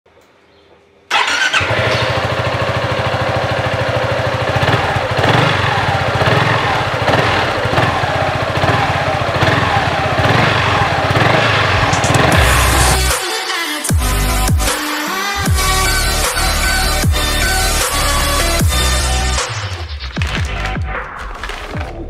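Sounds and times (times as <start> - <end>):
scooter engine idling: 1.1 - 13.1.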